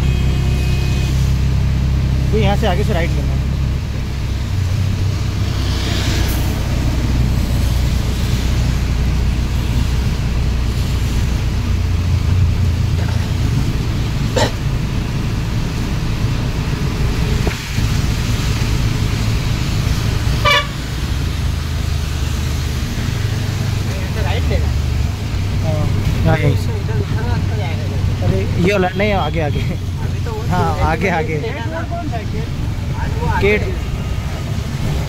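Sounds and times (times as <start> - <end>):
vehicle horn toots: 0.0 - 1.4, 20.4 - 20.9
rickshaw engine running: 0.0 - 35.0
tyres on wet road: 0.0 - 35.0
rain hissing: 1.2 - 28.5.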